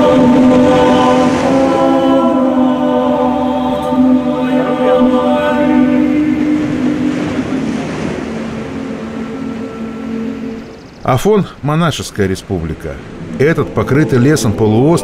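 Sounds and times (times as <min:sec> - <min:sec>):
choir singing held notes: 0:00.0 - 0:11.0.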